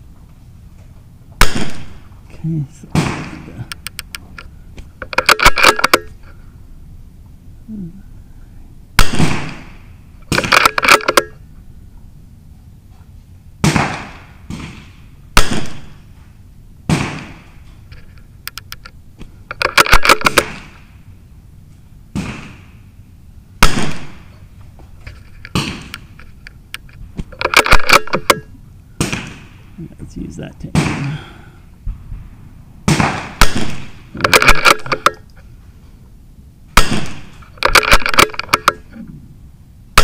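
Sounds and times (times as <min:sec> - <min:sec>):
rifle shots: 0:01.4 - 0:02.1, 0:02.9 - 0:03.7, 0:05.0 - 0:06.1, 0:09.0 - 0:11.4, 0:13.6 - 0:16.1, 0:16.9 - 0:17.6, 0:19.5 - 0:21.0, 0:22.1 - 0:22.8, 0:23.6 - 0:24.4, 0:25.5 - 0:26.2, 0:27.3 - 0:29.7, 0:30.7 - 0:31.3, 0:32.8 - 0:35.3, 0:36.8 - 0:38.9.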